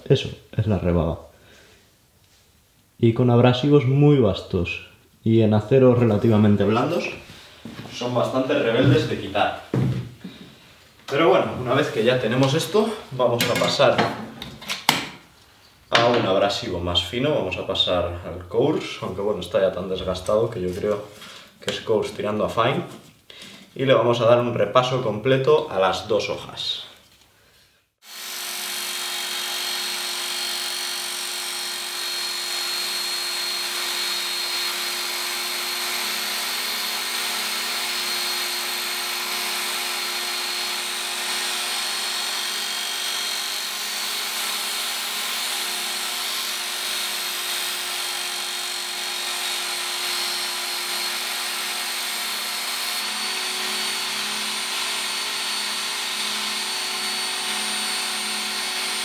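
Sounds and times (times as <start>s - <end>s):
belt sharpener motor humming: 28.0s - 59.0s.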